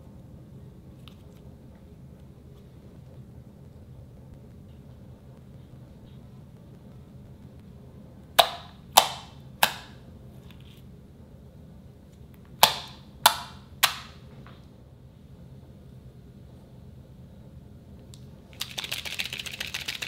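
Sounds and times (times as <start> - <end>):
fingers popping slime: 8.4 - 10.0, 12.6 - 14.1.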